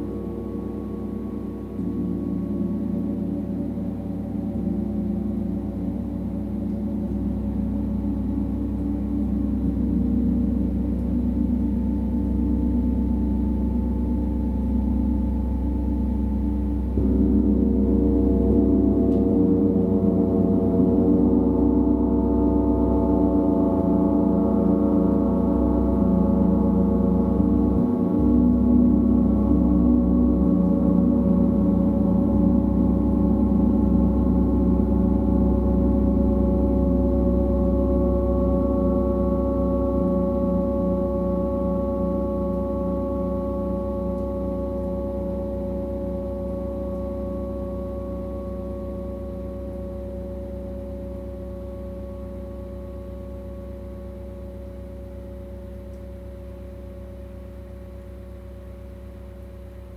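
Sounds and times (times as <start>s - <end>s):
gong ringing: 9.1s - 56.9s.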